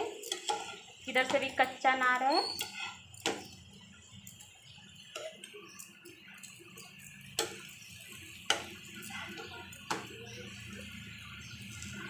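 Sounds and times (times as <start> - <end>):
spatula tapping metal pan: 0.0 - 3.6, 7.2 - 10.4
oil sizzling: 0.0 - 12.0.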